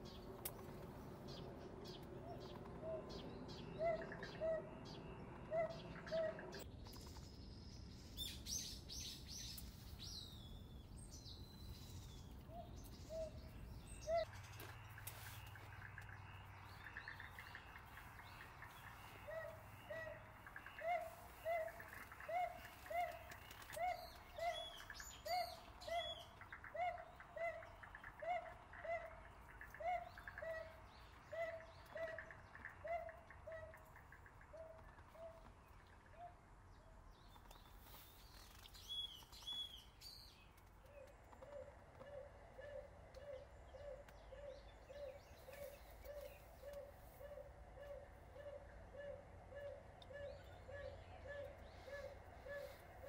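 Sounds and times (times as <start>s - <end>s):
birds chirping: 0.0s - 53.0s
bird hooting: 2.8s - 6.6s, 17.2s - 33.8s, 41.4s - 53.0s.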